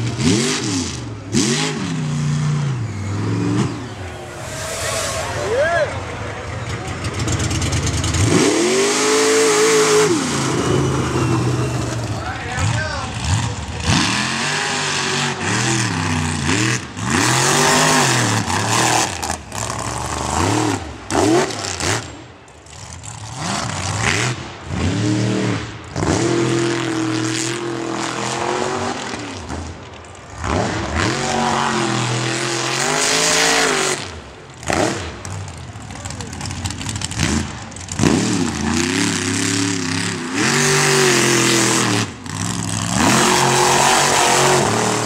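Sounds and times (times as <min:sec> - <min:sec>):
buggy engines revving hard: 0:00.0 - 0:45.0
spinning tyres throwing dirt: 0:32.6 - 0:45.0.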